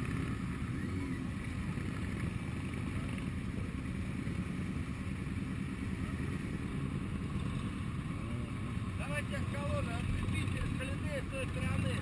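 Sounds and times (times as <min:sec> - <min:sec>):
motorcycle engines droning: 0:00.0 - 0:12.0.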